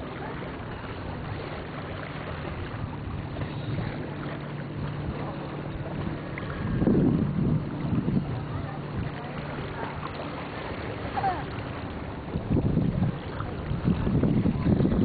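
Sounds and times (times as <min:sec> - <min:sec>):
low motor drone: 0:00.0 - 0:15.0
wind noise on microphone: 0:04.8 - 0:10.2, 0:12.1 - 0:15.0.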